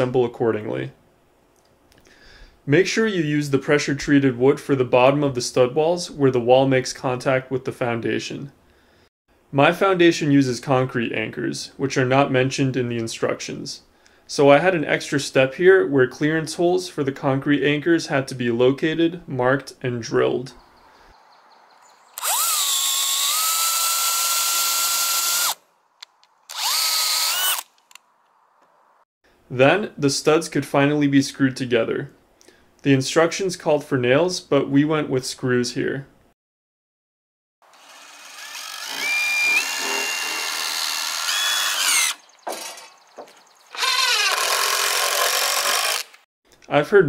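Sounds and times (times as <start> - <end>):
power drill whine: 22.2 - 25.6, 26.5 - 27.7, 37.7 - 42.2, 43.7 - 46.2
impact driver driving screws into wood: 38.4 - 42.8, 43.7 - 46.2.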